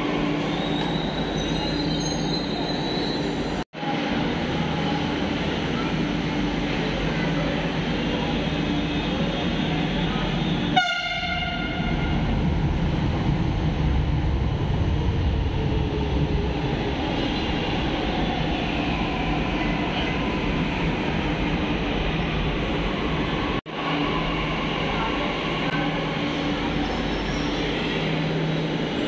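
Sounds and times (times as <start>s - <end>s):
train rumbling: 0.0s - 29.0s
train horn toot: 10.7s - 12.1s.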